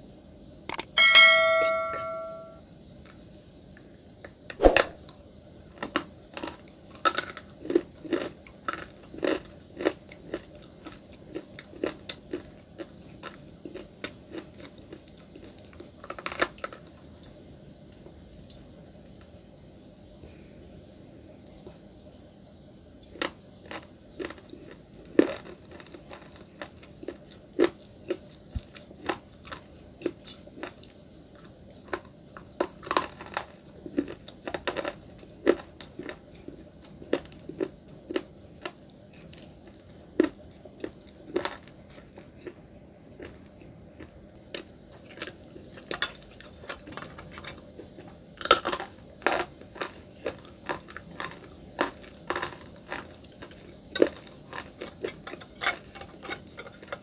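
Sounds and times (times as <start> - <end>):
chewing hard stone crunches: 5.9 - 16.8, 45.9 - 56.9.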